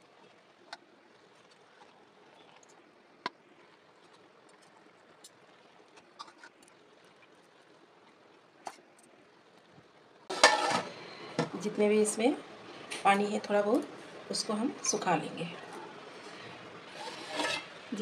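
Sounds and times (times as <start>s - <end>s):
metal utensils clicking on pot: 10.3s - 10.9s.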